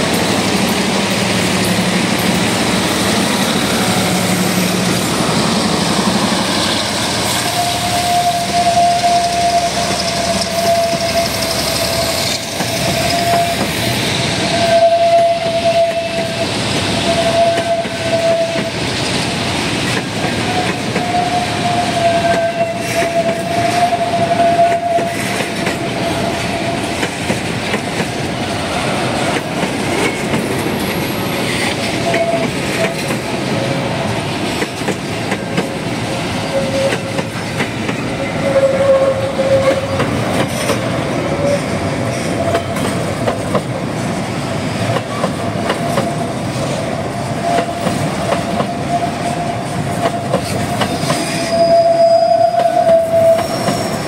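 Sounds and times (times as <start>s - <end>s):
train wheels rumbling: 0.0s - 54.0s
high wheel squeal: 3.6s - 18.7s, 20.6s - 26.9s, 38.0s - 40.1s, 50.8s - 54.0s
clacks over rail joints: 29.2s - 33.5s, 34.4s - 35.9s, 39.6s - 44.0s, 44.8s - 46.8s.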